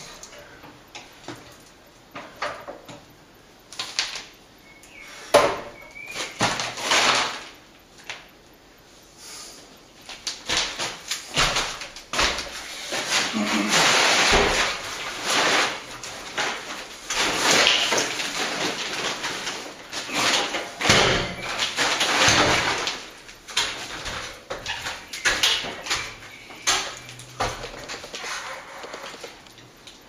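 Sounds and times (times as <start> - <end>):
stepladder scraping and knocking: 10.4 - 29.4.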